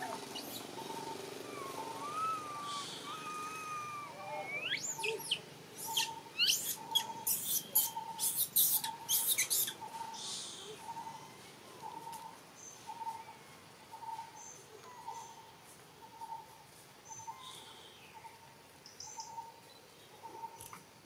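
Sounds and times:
baby monkey screaming: 0.0s - 9.8s.

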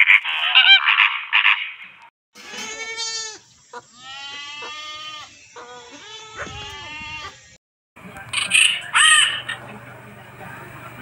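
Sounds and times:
macaw squawking: 0.0s - 1.9s, 8.3s - 9.6s
goats bleating: 2.4s - 7.4s.

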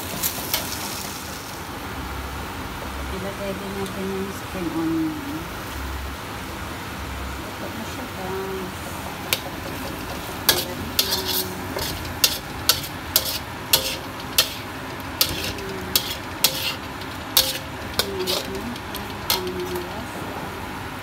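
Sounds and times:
food sizzling: 0.0s - 1.8s, 8.2s - 20.2s
spatula scraping and knocking wok: 9.2s - 20.1s.

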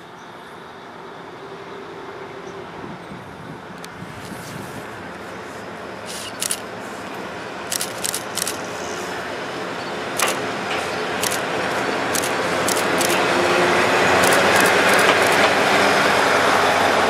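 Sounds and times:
diesel railcar approaching: 0.0s - 17.0s
camera shutter clicks: 6.1s - 6.7s, 7.7s - 8.7s, 10.2s - 10.4s, 11.2s - 11.5s, 12.1s - 13.2s, 14.2s - 15.5s.

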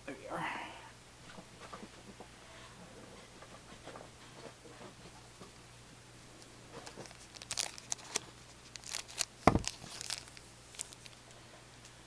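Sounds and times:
foil wrapper crackling: 6.7s - 11.3s
thump: 9.5s - 9.7s.

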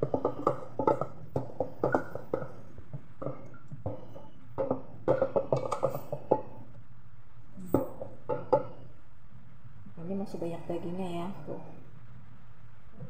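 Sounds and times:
knocks against a pot: 0.0s - 6.6s, 7.7s - 8.8s.

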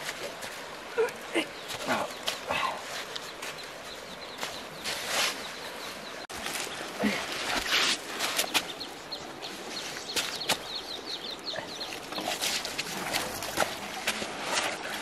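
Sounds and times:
bird chirping: 1.4s - 6.9s, 8.2s - 12.7s.

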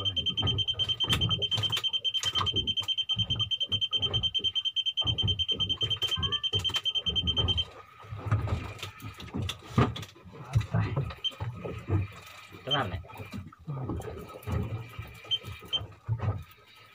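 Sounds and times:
high-pitched electronic alarm tone: 0.0s - 7.8s, 11.2s - 13.3s.

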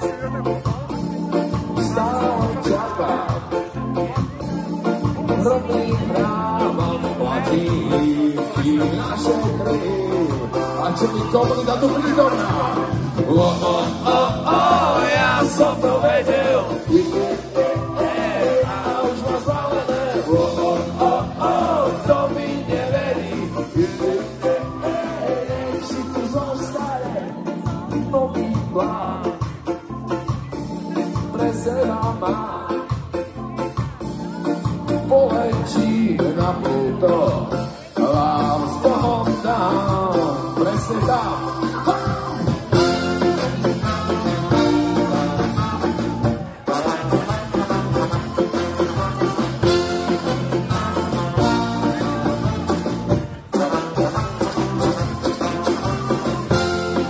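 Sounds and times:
live ska band playing: 0.0s - 57.0s
person singing lead vocal: 1.6s - 3.9s, 4.5s - 29.6s, 31.1s - 33.1s, 34.2s - 53.9s.

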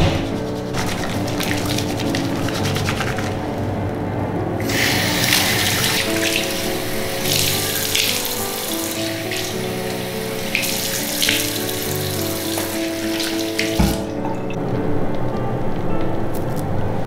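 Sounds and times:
hands splashing in water stream: 0.8s - 3.4s, 10.5s - 14.2s
water running from tap into basin: 4.6s - 14.2s.

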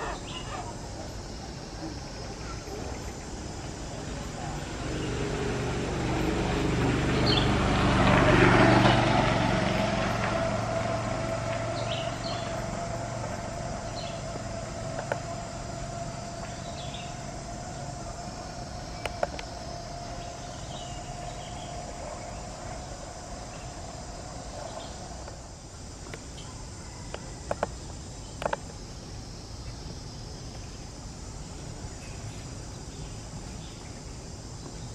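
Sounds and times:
insect drone: 0.0s - 34.9s
vehicle passing: 3.2s - 26.0s.

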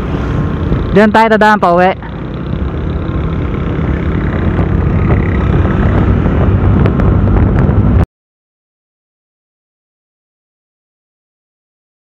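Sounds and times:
wind rushing over microphone: 0.0s - 1.2s, 1.9s - 8.1s
scooter engine running: 0.0s - 8.0s.

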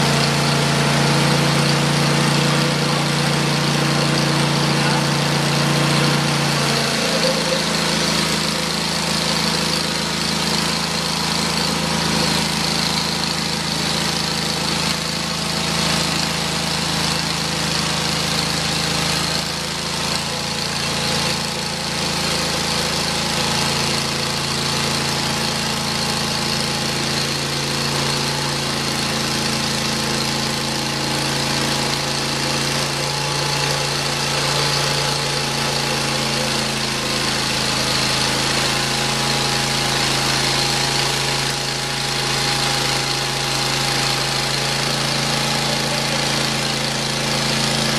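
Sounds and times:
bandsaw mill cutting log: 0.0s - 47.9s.

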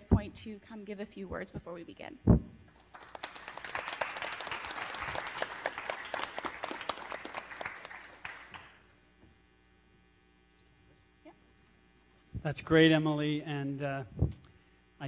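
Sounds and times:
audience applauding: 2.8s - 8.9s.

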